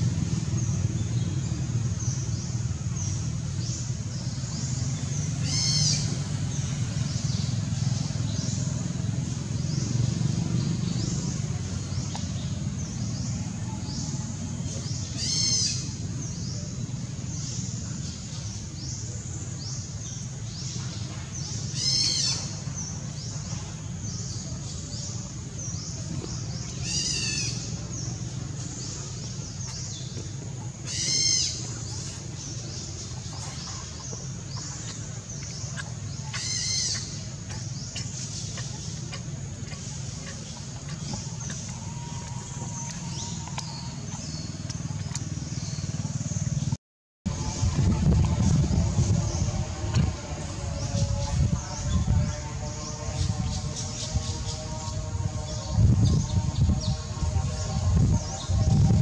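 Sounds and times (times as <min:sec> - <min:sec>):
low rumble: 0:31.5 - 0:59.0.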